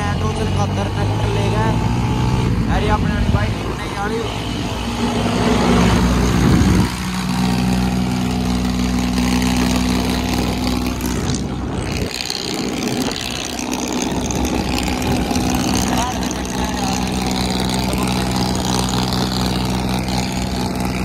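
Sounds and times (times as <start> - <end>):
motorcycle engine: 0.0 - 21.0
tractor engine hum: 0.0 - 21.0
wind rushing over microphone: 1.8 - 7.4, 11.0 - 16.5.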